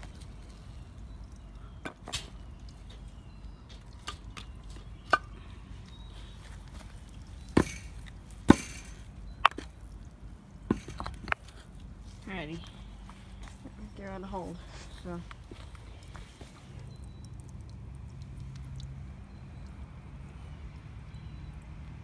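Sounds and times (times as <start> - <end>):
knocks on wood and block: 8.5 - 9.7.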